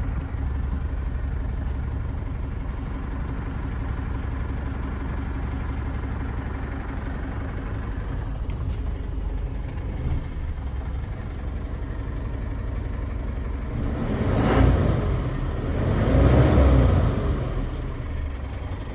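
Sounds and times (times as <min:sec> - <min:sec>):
diesel truck engine idling: 0:00.0 - 0:18.9
truck engine revving: 0:13.6 - 0:18.1.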